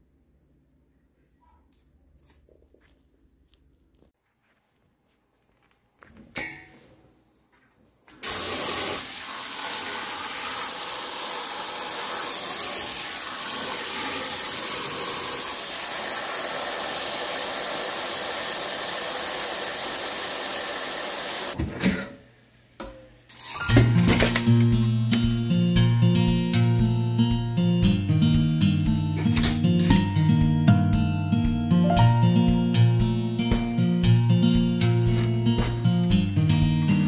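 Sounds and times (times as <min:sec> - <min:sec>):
tap water running into metal bowl: 0:08.2 - 0:21.6.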